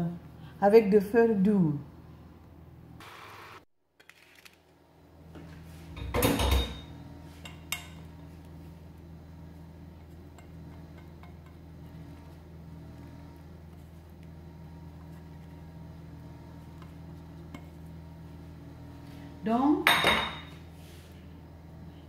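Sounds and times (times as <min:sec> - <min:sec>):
steady low hum: 0:00.0 - 0:03.0, 0:04.7 - 0:22.0
metal cookware clattering: 0:06.0 - 0:06.9, 0:19.9 - 0:20.6.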